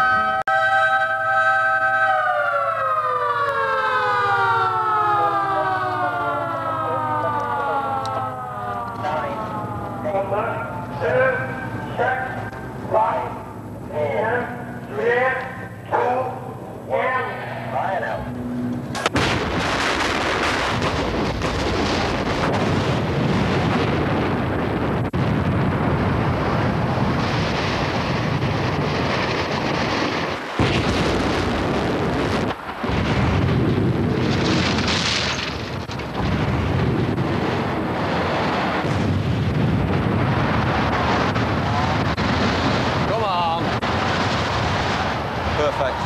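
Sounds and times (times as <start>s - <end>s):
explosive blasts: 18.2s - 46.0s
rumble of building collapsing: 18.9s - 46.0s.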